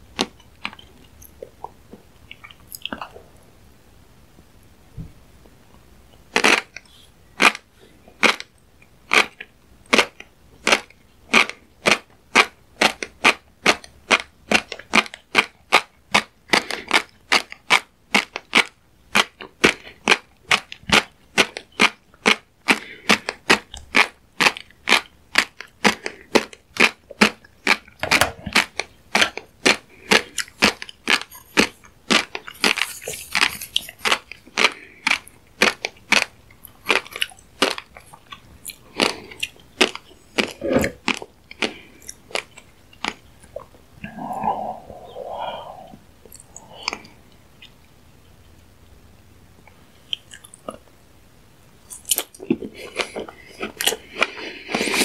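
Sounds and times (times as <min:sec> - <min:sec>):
mouth chewing popping fish eggs: 0:00.0 - 0:03.4, 0:06.2 - 0:48.8, 0:49.7 - 0:51.0, 0:51.9 - 0:55.0.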